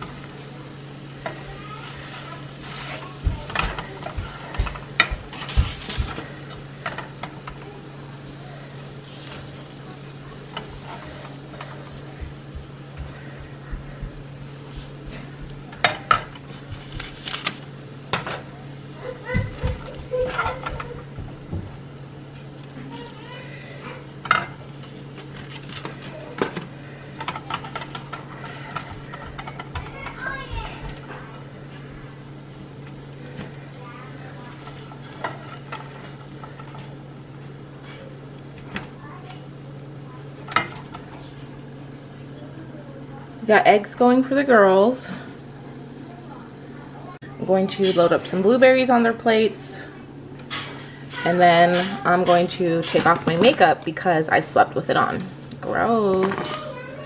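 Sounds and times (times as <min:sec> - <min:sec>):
steady low hum: 0:00.0 - 0:57.0
spatula scraping frying pan: 0:01.2 - 0:07.6, 0:24.2 - 0:31.1.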